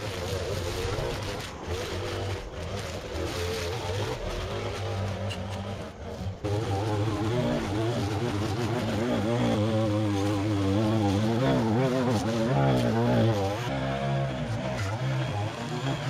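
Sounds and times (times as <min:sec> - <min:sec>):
string trimmer cutting grass: 0:00.0 - 0:16.0.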